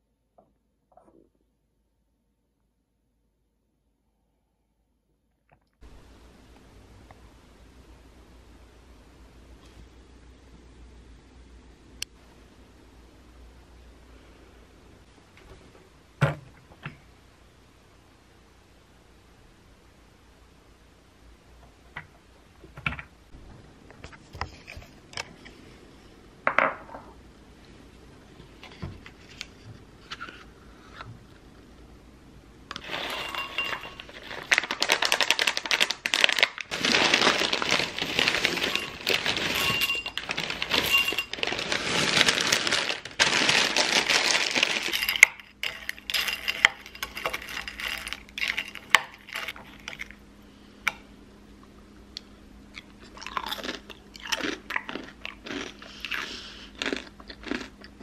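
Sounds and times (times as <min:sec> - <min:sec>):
cereal pattering into glass bowl: 0:32.8 - 0:50.1
foil packet crinkling: 0:32.8 - 0:50.2
spoon clinking on glass bowl: 0:32.9 - 0:34.1, 0:38.7 - 0:41.4.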